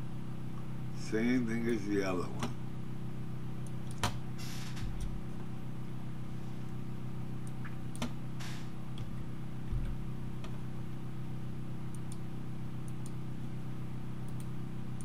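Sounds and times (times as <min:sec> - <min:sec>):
low electrical hum: 0:00.0 - 0:15.0
computer mouse clicks: 0:12.8 - 0:13.2, 0:14.3 - 0:14.5.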